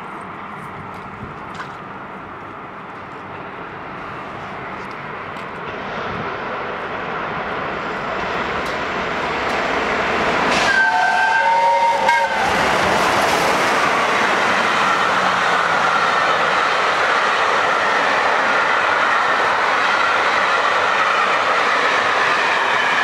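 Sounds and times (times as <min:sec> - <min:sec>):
steam locomotive passing: 0:00.0 - 0:23.0
steam whistle: 0:10.5 - 0:12.7.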